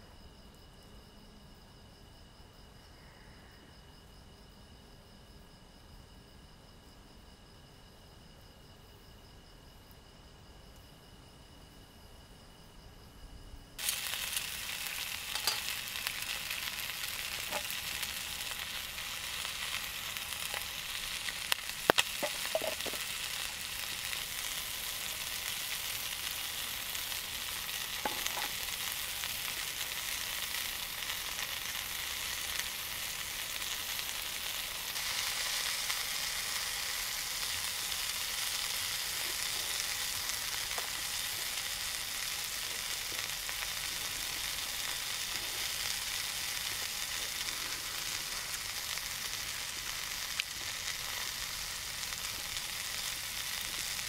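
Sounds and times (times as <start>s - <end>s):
food sizzling in a frying pan: 13.8s - 54.0s.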